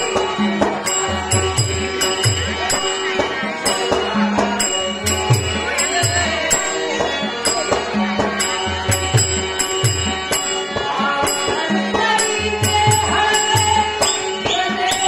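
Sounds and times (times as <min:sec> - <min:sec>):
harmonium holding notes: 0:00.0 - 0:15.0
small cymbals struck: 0:08.4 - 0:10.6.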